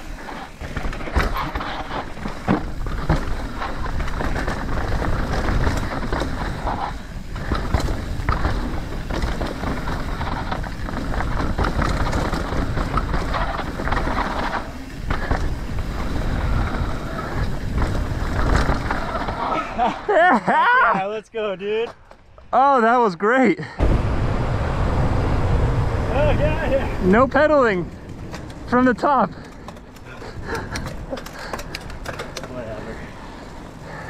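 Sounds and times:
bike knocks and rattles: 0.0 - 19.9, 27.0 - 34.0
bike tyres rolling on dirt: 0.0 - 22.6, 23.8 - 34.0.

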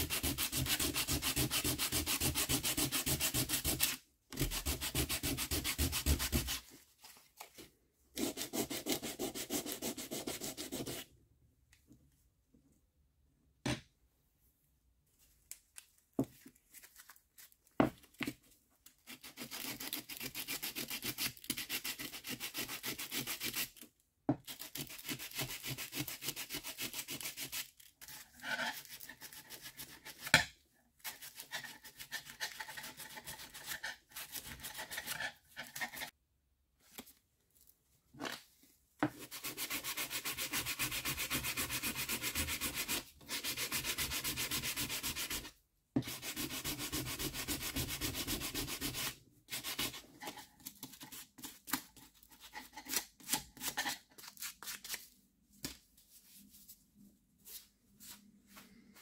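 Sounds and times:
sandpaper rubbing on wood: 0.0 - 6.6, 39.2 - 45.5, 46.1 - 50.3.

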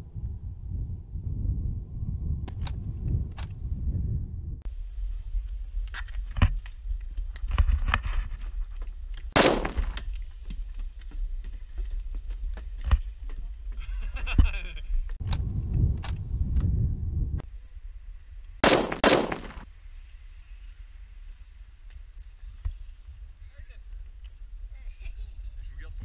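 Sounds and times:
loud rifle shot: 9.4 - 10.0, 18.6 - 19.6.

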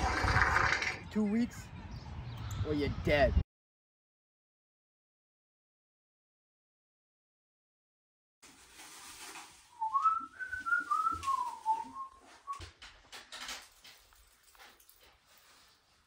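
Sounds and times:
person whistling a tune: 9.8 - 12.6
handling clatter and knocks: 12.5 - 15.6.

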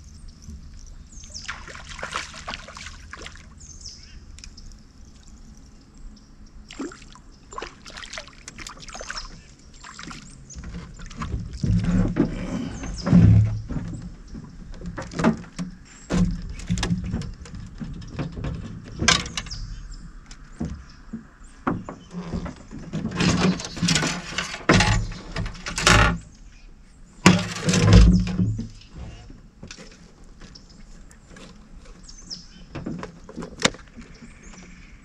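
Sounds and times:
knocks and clatter in a boat: 7.6 - 26.4, 27.2 - 35.0.

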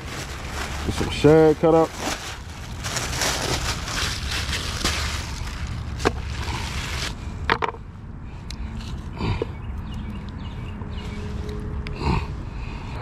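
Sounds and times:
plastic bags crinkling: 0.0 - 7.2.

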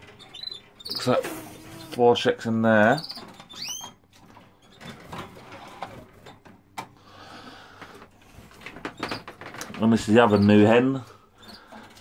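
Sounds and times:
canary chirp: 0.0 - 2.0, 2.9 - 4.0, 10.1 - 10.8, 11.4 - 11.8.

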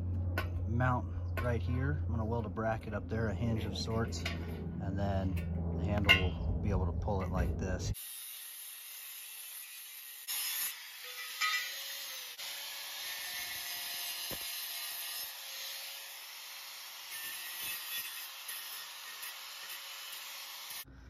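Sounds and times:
angle grinder grinding steel: 8.0 - 20.9.

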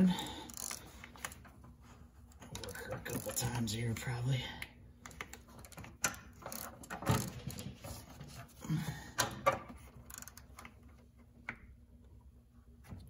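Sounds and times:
ratchet wrench clicking: 0.5 - 0.8, 10.1 - 10.4.

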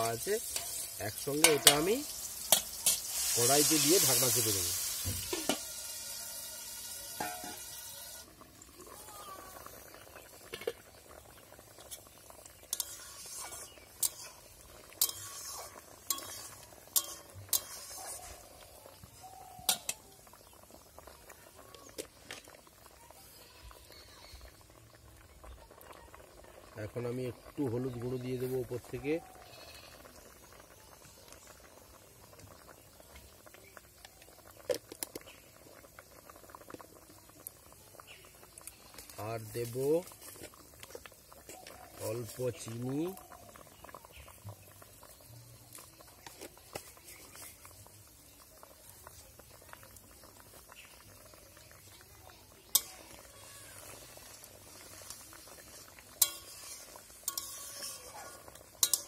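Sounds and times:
metal ladle scraping a wok: 0.0 - 4.1, 12.6 - 18.5, 53.8 - 59.0
liquid simmering and bubbling: 0.0 - 59.0.

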